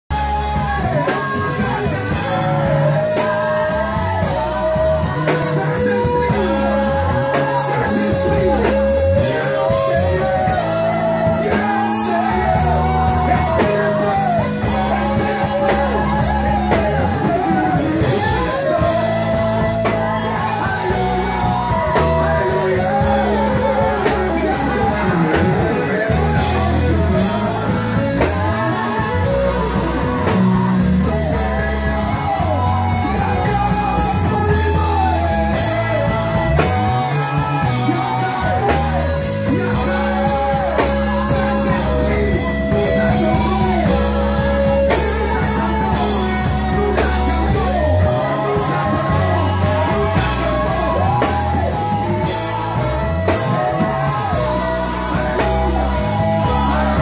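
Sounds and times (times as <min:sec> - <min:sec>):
bass guitar notes: 0:00.0 - 0:57.0
electric keyboard: 0:00.0 - 0:57.0
drum kit with cymbal strokes: 0:00.1 - 0:57.0
lead and backing singers singing: 0:00.1 - 0:57.0.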